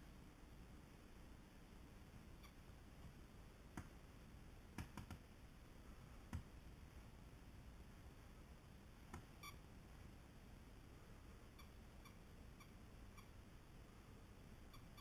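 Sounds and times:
faint sharp clicks: 0:03.0 - 0:04.0, 0:04.8 - 0:05.2, 0:09.1 - 0:09.3.

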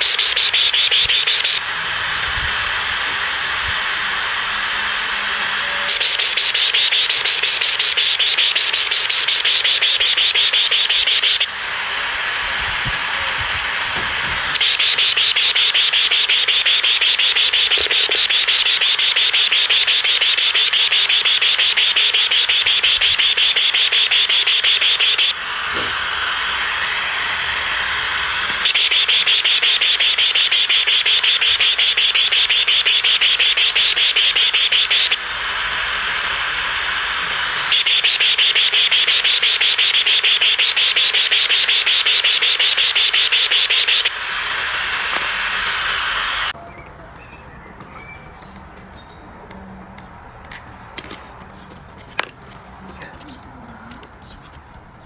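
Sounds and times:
radio speaker pulsing buzzy static: 0:00.0 - 0:46.6.

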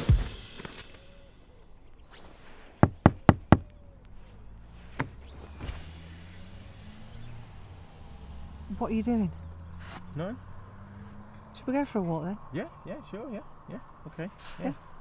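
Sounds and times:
knuckles knocking on car: 0:02.8 - 0:03.7.

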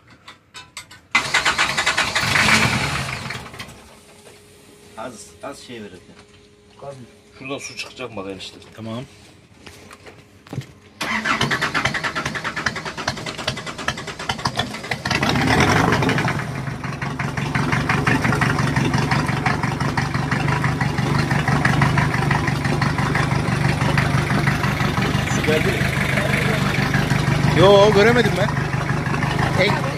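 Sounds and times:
diesel engine cranking and running: 0:00.1 - 0:04.0, 0:11.0 - 0:29.9.

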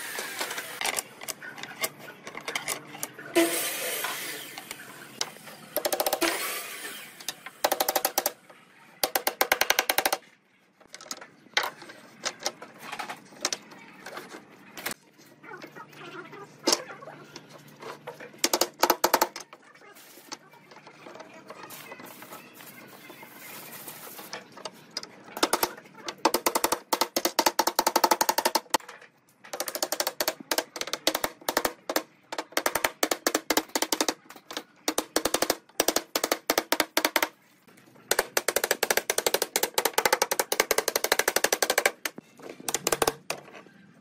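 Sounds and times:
hammer tapping on wooden strips: 0:29.5 - 0:37.3.

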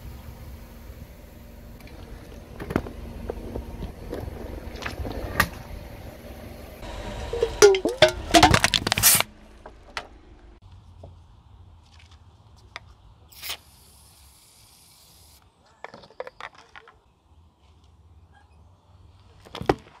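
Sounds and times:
tyre crushing spray can: 0:07.3 - 0:09.3, 0:13.3 - 0:15.4.

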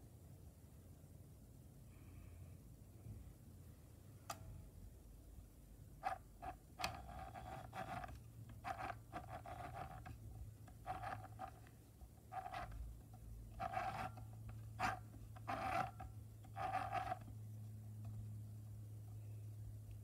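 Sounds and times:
sewing machine stitching: 0:06.0 - 0:12.9, 0:13.5 - 0:17.3.

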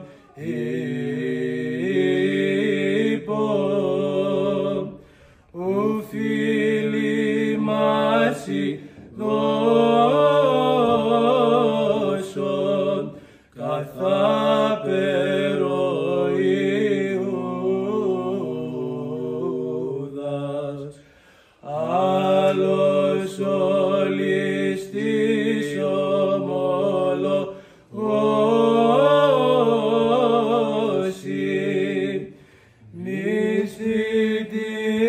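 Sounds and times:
men chanting a hymn: 0:00.0 - 0:35.0.

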